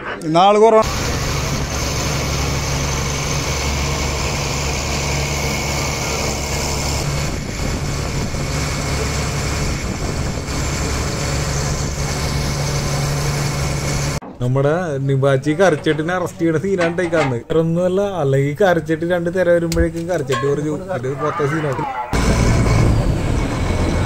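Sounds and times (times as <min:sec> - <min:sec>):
boat engine droning: 0:00.8 - 0:14.2, 0:20.4 - 0:24.0.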